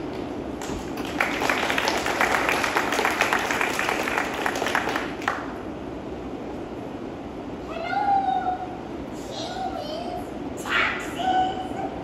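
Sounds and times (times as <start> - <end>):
audience applause: 0.6 - 5.5.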